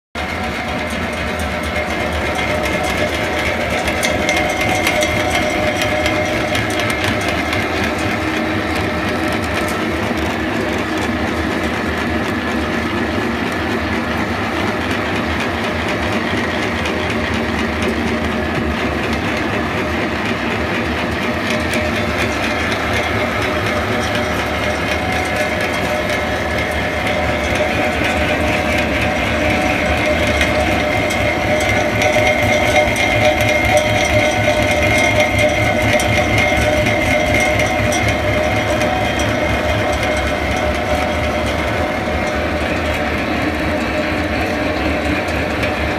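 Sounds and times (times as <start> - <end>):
pellet mill rattling and whining: 0.2 - 45.9.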